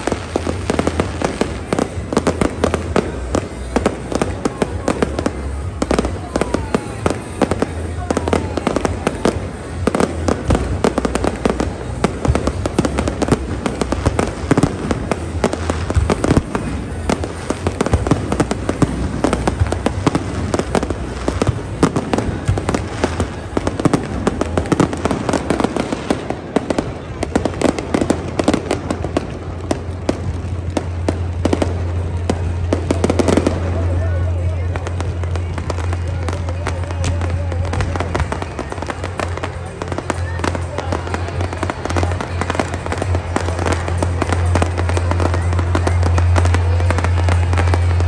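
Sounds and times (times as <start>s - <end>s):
fireworks bangs and crackles: 0.0s - 48.0s.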